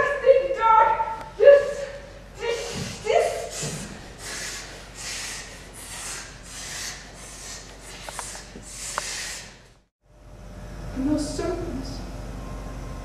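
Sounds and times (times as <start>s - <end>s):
person breathing hard: 2.4s - 9.8s.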